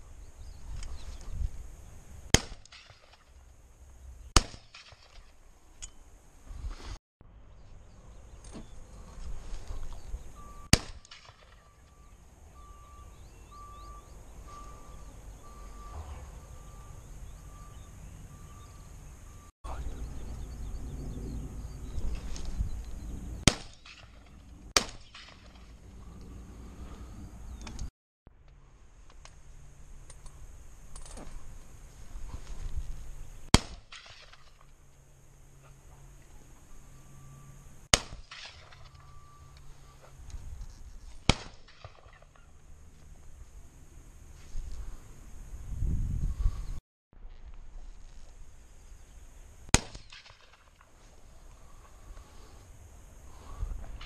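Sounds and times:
shotgun shot: 2.3s - 3.2s, 4.4s - 5.2s, 10.7s - 11.6s, 23.4s - 24.2s, 24.8s - 25.5s, 33.5s - 34.5s, 37.9s - 38.8s, 41.3s - 42.2s, 49.7s - 50.7s
wind rumble: 14.9s - 24.8s, 43.2s - 46.8s.

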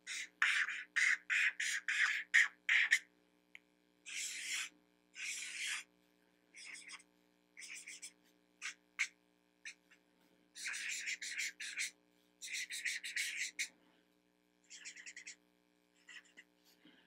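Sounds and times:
marker pen squeaking on paper: 0.0s - 3.0s, 4.1s - 5.9s, 6.6s - 7.0s, 7.6s - 9.1s, 10.6s - 13.7s, 14.7s - 15.4s, 16.0s - 16.5s.

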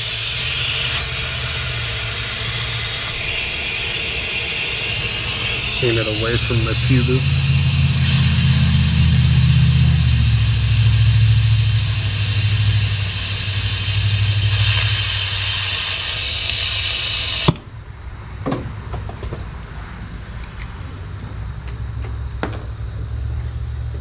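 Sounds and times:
air tool hissing: 0.0s - 17.7s
sharp click of air shutoff: 0.0s - 17.7s
low hum: 0.0s - 18.0s.

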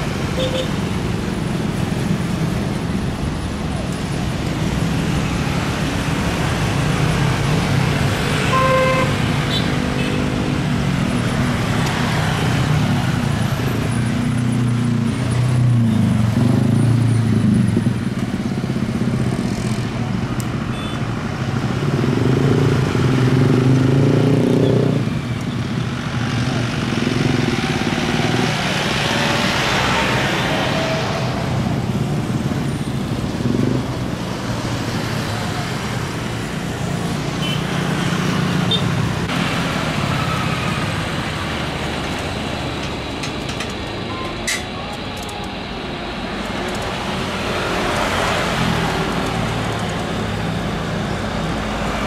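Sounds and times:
traffic passing: 0.0s - 52.0s
car horn toot: 8.5s - 10.1s.

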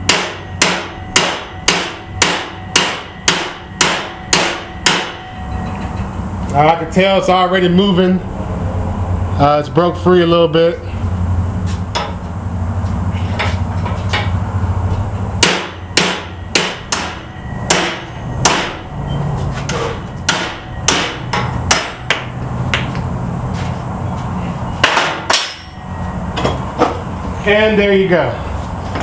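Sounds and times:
hammer striking chisel: 0.0s - 5.3s, 15.4s - 18.8s, 19.7s - 22.9s, 24.8s - 25.7s.

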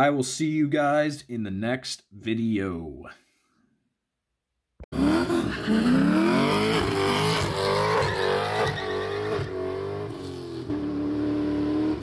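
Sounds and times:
car engine revving: 4.9s - 12.0s.

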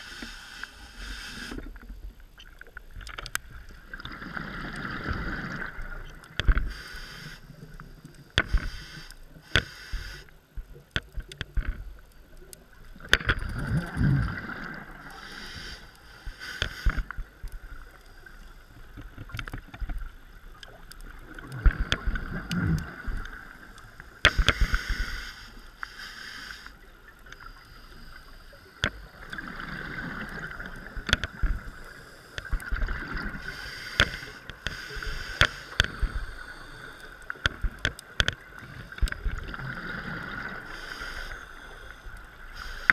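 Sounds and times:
regulator hissing inhale: 0.0s - 1.8s, 6.6s - 10.3s, 13.8s - 17.2s, 24.1s - 30.6s, 33.4s - 37.5s, 38.6s - 42.9s
exhaled air bubbling: 12.8s - 15.8s, 19.9s - 25.1s.

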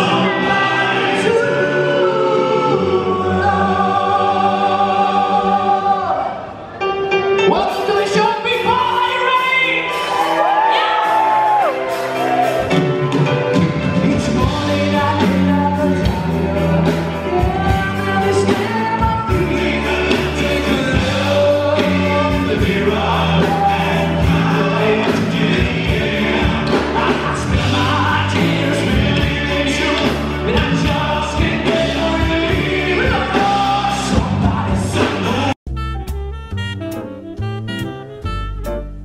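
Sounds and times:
live rock-pop band playing: 0.0s - 4.2s, 6.6s - 39.0s
person singing: 7.4s - 35.6s.

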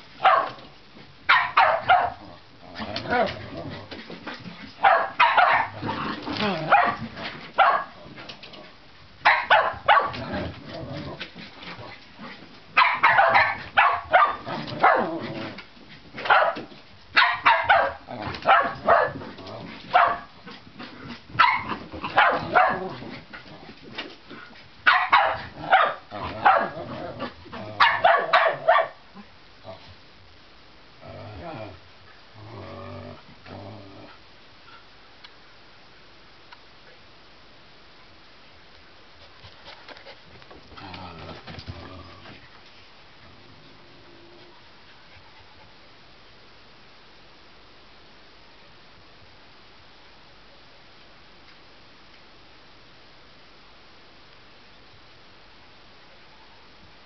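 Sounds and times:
dogs barking: 0.2s - 0.6s, 1.3s - 2.3s, 4.8s - 5.9s, 6.7s - 7.0s, 7.6s - 8.0s, 9.2s - 10.2s, 12.8s - 15.1s, 16.3s - 19.2s, 19.9s - 20.3s, 21.4s - 22.9s, 24.9s - 26.8s, 27.8s - 29.0s.

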